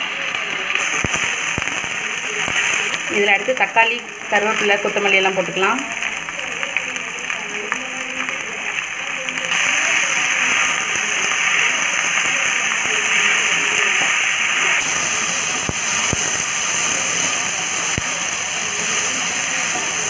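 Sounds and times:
vegetables sizzling in hot oil: 0.0 - 20.0.

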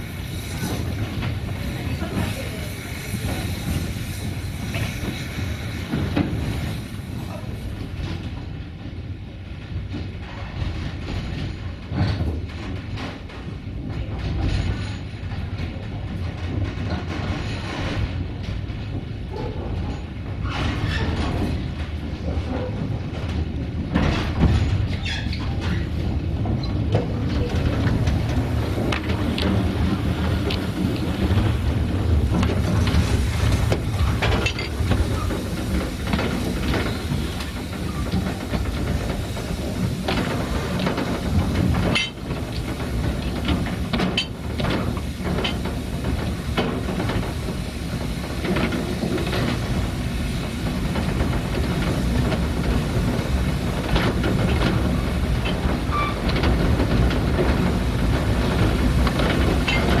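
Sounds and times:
steam hissing: 0.0 - 8.3, 24.2 - 60.0
wheels clanking on rails: 0.0 - 60.0.

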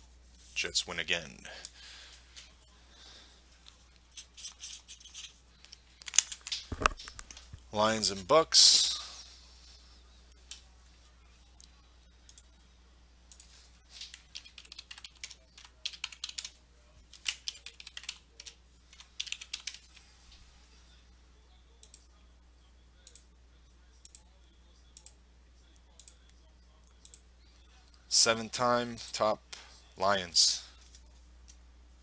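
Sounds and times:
keyboard typing: 13.3 - 20.0.

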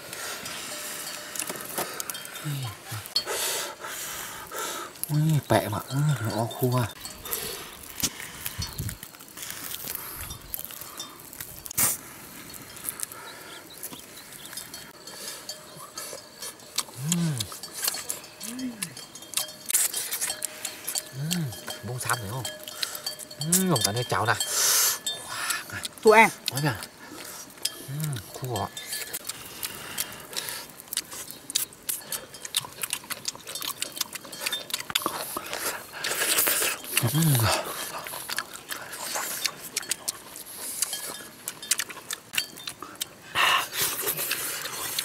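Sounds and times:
grilled fish crackling: 0.0 - 45.0
lip-smacking and chewing: 15.5 - 24.4, 25.0 - 45.0.

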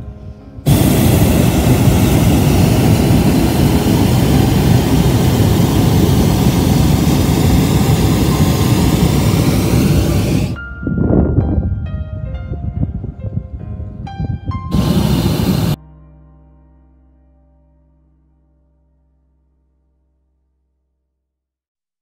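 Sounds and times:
propane burner rushing: 0.7 - 10.6, 14.7 - 15.8.

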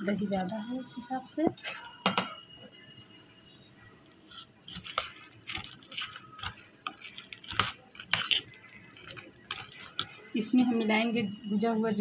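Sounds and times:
spoon scraping and clinking bowl: 4.0 - 10.4.

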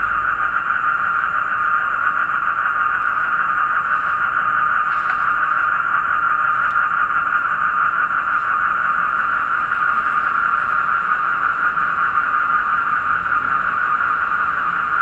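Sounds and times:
chorus of toads calling: 0.0 - 15.0
crickets chirping: 0.0 - 15.0.

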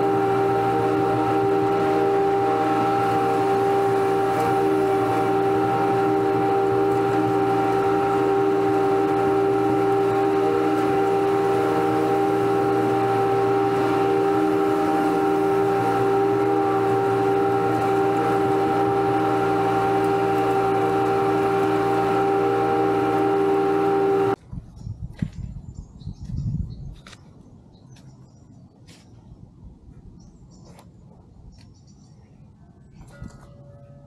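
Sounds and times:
riding lawn mower running: 0.0 - 24.4.

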